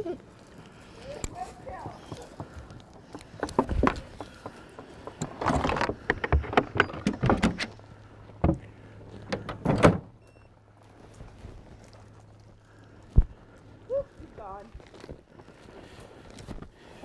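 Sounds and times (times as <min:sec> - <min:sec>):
knocks clunks and rattles: 0:01.8 - 0:10.2.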